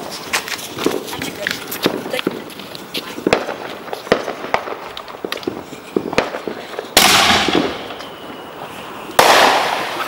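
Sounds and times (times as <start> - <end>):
firework pops: 3.2 - 8.2, 9.1 - 10.0
firework blast: 3.2 - 10.0.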